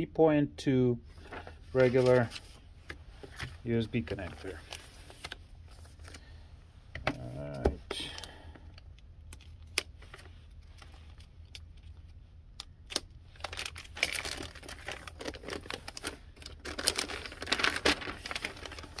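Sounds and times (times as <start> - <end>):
plastic sleeve rustling and crinkling: 1.1 - 6.2, 12.9 - 19.0.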